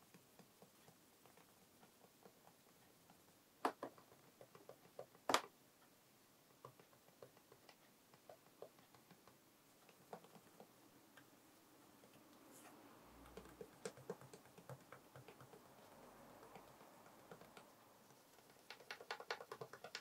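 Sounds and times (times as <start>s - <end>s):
fingers clicking and scratching guitar: 13.2s - 20.0s.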